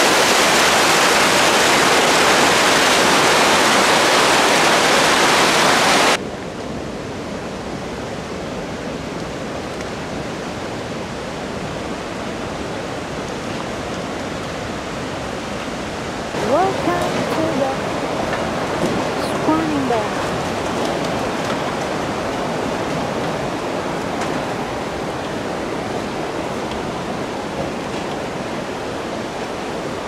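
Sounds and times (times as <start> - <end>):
fast shallow water rushing: 0.0 - 6.2, 11.5 - 30.0
river water rushing: 0.0 - 6.3, 7.0 - 30.0.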